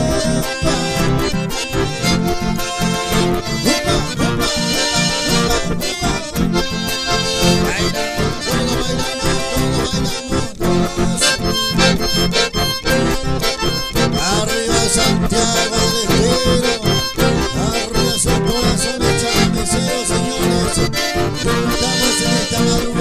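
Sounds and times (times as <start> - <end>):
steady low beat: 0.0 - 10.0
accordions playing dance tune: 0.0 - 23.0
acoustic guitar: 0.0 - 23.0.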